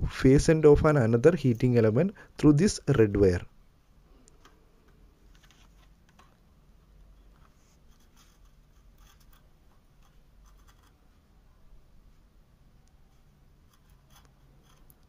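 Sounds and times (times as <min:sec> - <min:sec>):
low room hum: 0:00.0 - 0:15.0
faint scratches and ticks: 0:07.0 - 0:11.3, 0:12.1 - 0:15.0.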